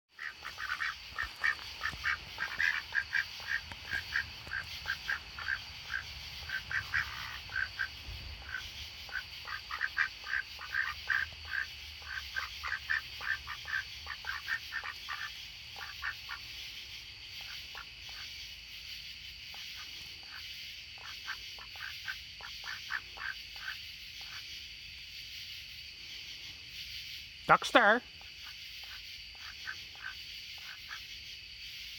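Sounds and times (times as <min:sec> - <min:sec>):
ducks quacking: 0:00.1 - 0:16.8, 0:19.6 - 0:24.4, 0:27.5 - 0:31.1.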